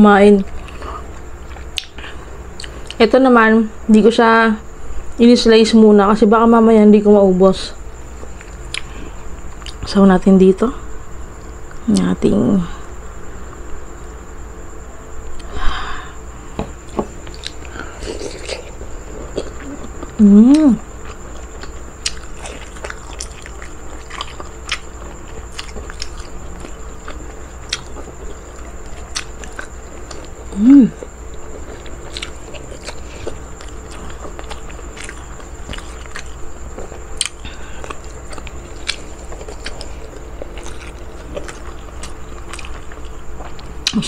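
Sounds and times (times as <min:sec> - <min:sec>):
person chewing food: 0:08.2 - 0:09.8, 0:16.8 - 0:44.0.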